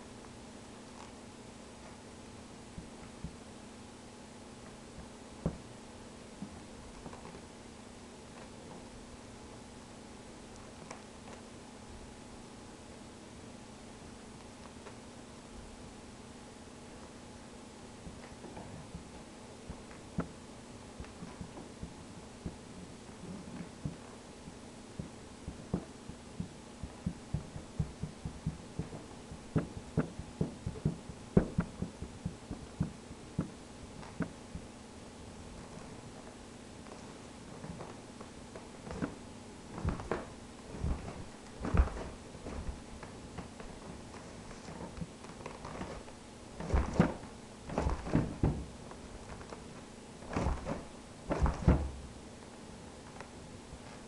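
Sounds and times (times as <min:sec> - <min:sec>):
pointe shoes knocking on wooden floor: 0:05.0 - 0:05.6, 0:25.0 - 0:34.7, 0:39.8 - 0:44.3.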